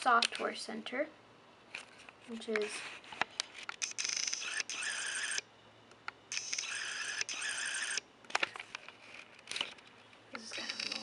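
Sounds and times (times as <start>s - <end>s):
lens autofocus motor whirring: 3.8s - 5.5s, 6.3s - 8.1s, 10.6s - 11.0s.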